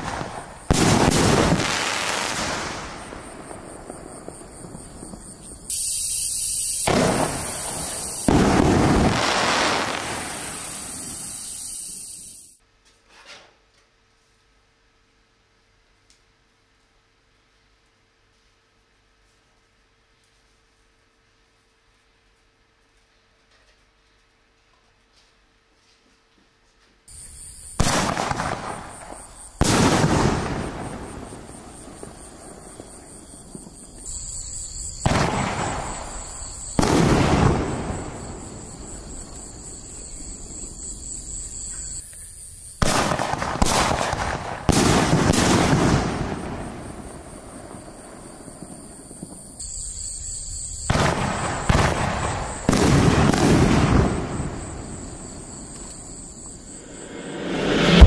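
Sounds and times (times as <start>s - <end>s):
firework bursting in the air: 0.0s - 12.6s, 27.1s - 41.5s, 42.6s - 58.0s
firework mortar launching: 0.0s - 12.6s, 27.1s - 40.6s, 42.8s - 49.4s, 50.8s - 55.6s, 56.7s - 58.0s.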